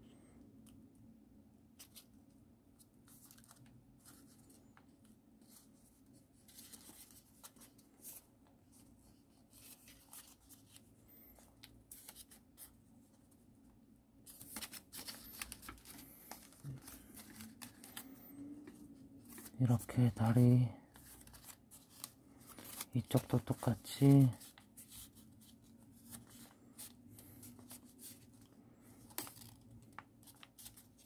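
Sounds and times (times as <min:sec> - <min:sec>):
paper rustling and crinkling: 0:01.8 - 0:13.4, 0:14.2 - 0:31.0
small paper crackles: 0:02.8 - 0:05.7, 0:06.4 - 0:12.7, 0:14.2 - 0:31.0.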